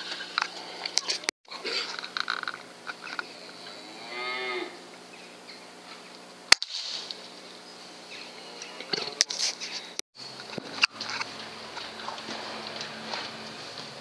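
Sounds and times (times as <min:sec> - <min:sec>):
air rifle shot: 0:06.5 - 0:07.3.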